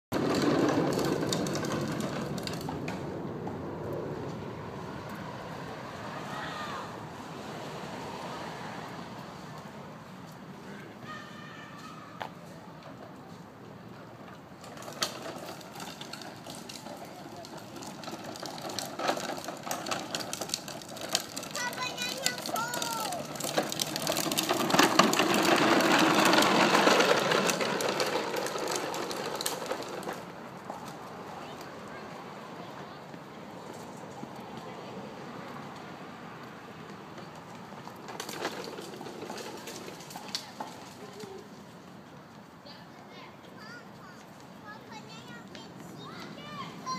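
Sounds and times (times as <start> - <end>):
bike rattling over pavement: 0.1 - 6.6, 13.8 - 42.5.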